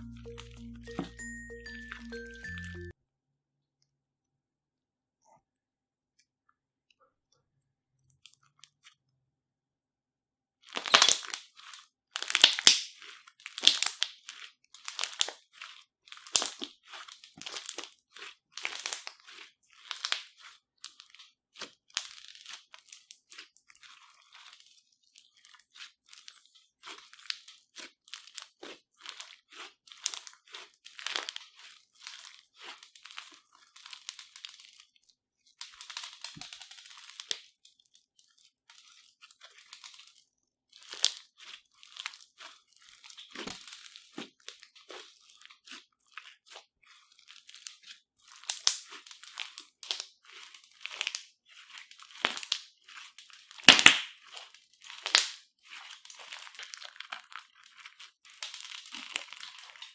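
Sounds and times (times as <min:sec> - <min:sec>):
crunchy slime squeezed by hand: 0:10.6 - 0:35.0, 0:38.4 - 0:59.9.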